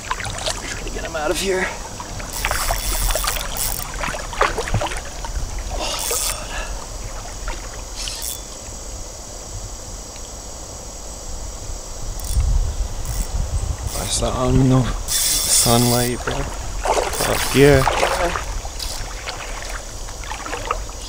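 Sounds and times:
river water sloshing around legs: 0.0s - 8.9s, 15.0s - 21.0s
hissing bursts: 15.0s - 17.5s.

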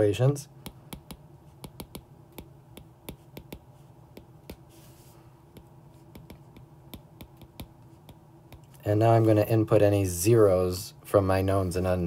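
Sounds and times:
stylus tapping on glass screen: 0.6s - 4.6s, 5.5s - 8.8s.

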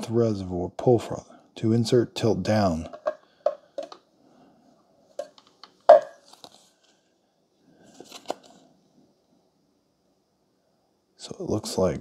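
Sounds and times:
soft handling noise: 2.8s - 4.1s, 5.1s - 8.8s.

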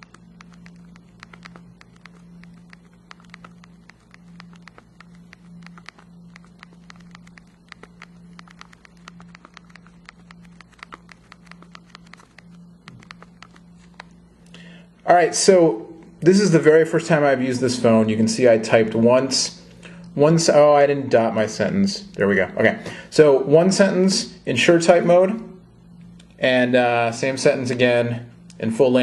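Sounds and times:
touchscreen clicking: 0.0s - 14.2s
faint low hum: 0.0s - 29.0s.

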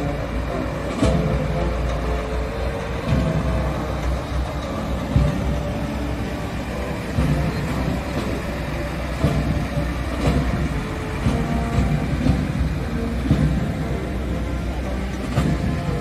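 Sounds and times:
vehicle engines rumbling: 0.0s - 16.0s.

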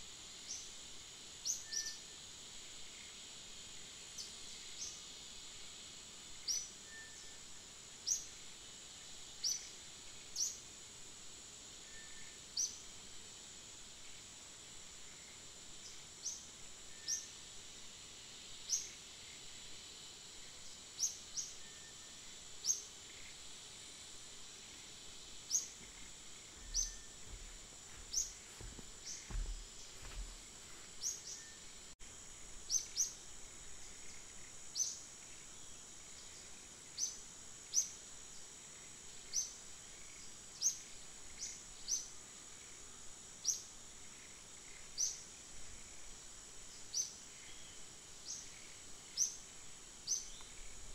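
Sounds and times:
insect drone: 0.0s - 50.9s
high falling chirps: 25.5s - 30.3s
low bumps: 25.8s - 30.8s.

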